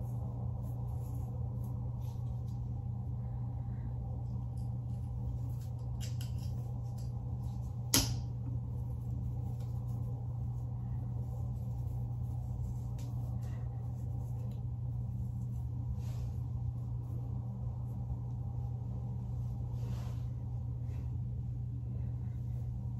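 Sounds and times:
faint hair rustles: 0.0s - 22.9s
low steady hum: 0.0s - 22.9s.

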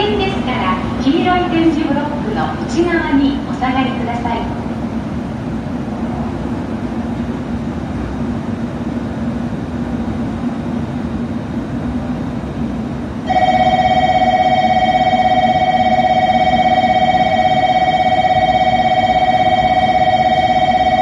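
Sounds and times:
steady low hum: 0.0s - 21.0s
electronic warning bell ringing: 13.3s - 21.0s.

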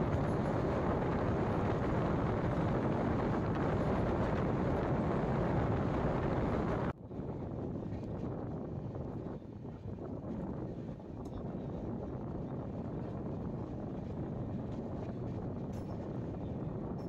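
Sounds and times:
train rumbling past: 0.0s - 6.9s
wind buffeting microphone: 0.0s - 17.0s.

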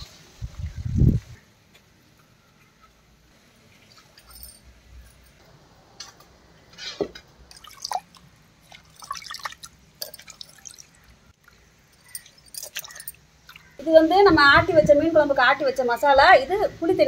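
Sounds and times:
water splashes and drips: 3.3s - 4.8s, 7.4s - 14.0s
water pouring: 7.5s - 13.8s.

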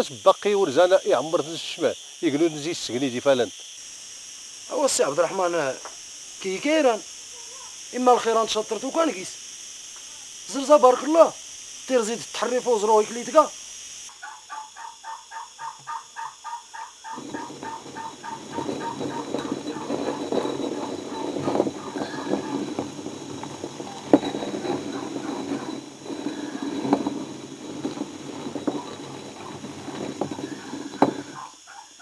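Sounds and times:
stone quern grinding rumble: 17.1s - 31.6s.

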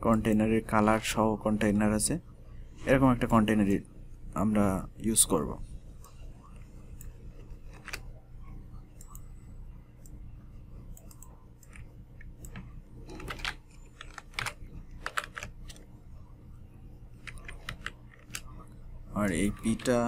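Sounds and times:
low steady hum: 0.0s - 20.0s
keyboard and mouse clicks: 7.0s - 8.1s, 10.9s - 15.9s, 17.2s - 18.6s.

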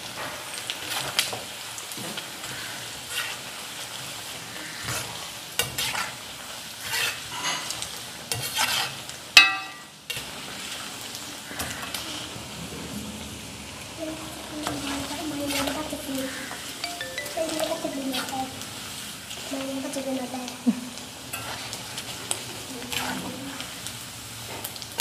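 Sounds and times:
oil sizzling: 0.0s - 25.0s
metal clang: 9.4s - 9.9s.

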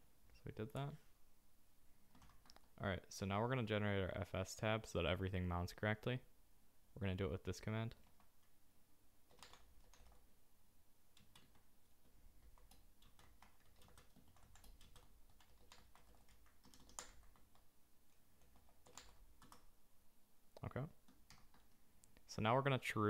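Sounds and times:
keystrokes on computer keyboard: 2.1s - 2.8s, 7.9s - 8.5s, 9.3s - 10.2s, 11.1s - 17.7s, 18.4s - 19.7s, 21.0s - 21.8s.

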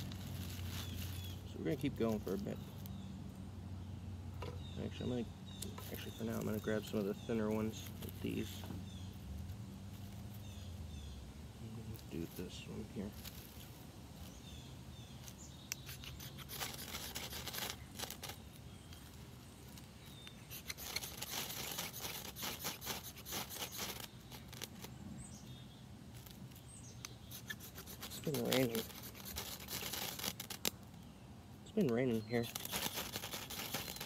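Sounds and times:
knife scraping ferrocerium rod: 15.7s - 18.4s, 20.2s - 24.9s, 27.0s - 30.7s.

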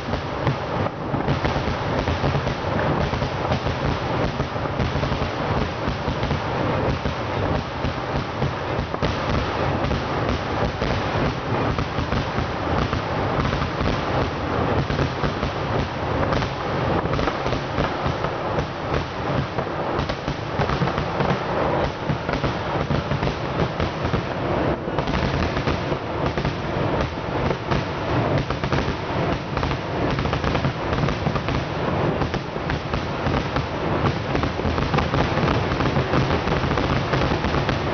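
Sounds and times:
fireworks bangs and cracks: 0.0s - 37.9s.

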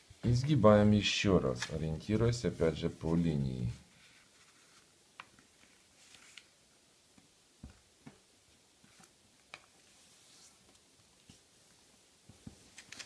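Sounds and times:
paper rustling and creasing: 1.4s - 2.1s, 3.0s - 6.5s, 12.6s - 13.0s.

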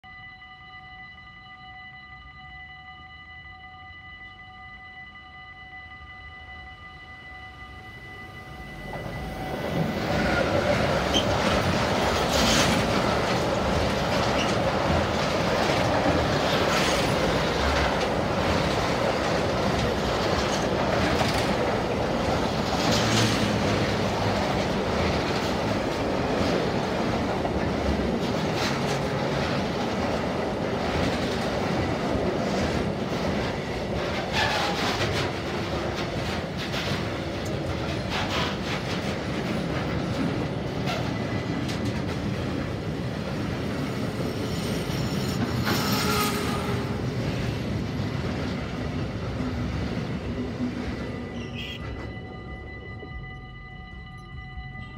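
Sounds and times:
freight train passing: 2.2s - 54.9s
wheels rumbling on rails: 8.0s - 54.9s
wheel squeals: 8.8s - 13.1s, 14.1s - 14.8s, 34.2s - 35.4s, 44.5s - 47.0s.

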